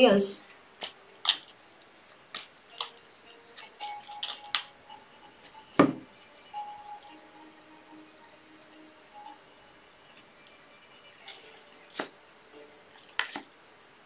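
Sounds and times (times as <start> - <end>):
cards shuffling: 0.4 - 4.7, 11.2 - 12.1, 12.9 - 13.5
deck knocking on table: 5.8 - 6.0.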